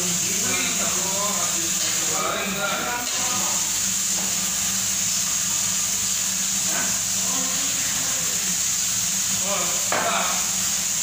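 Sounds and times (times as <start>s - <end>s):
steady hissing noise: 0.0s - 11.0s.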